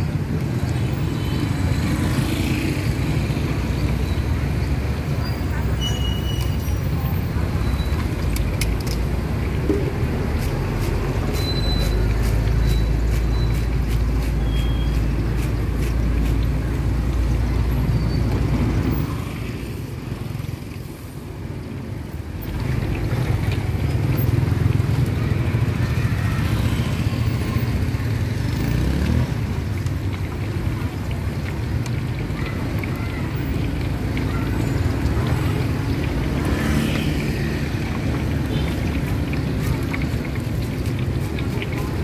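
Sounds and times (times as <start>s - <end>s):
street traffic rumble: 0.0s - 42.0s.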